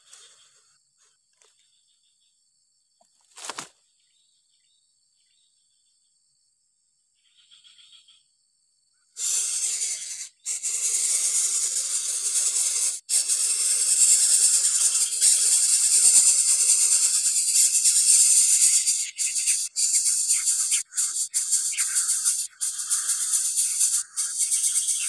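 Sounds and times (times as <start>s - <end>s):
nestlings hissing begging calls: 9.2s - 25.0s.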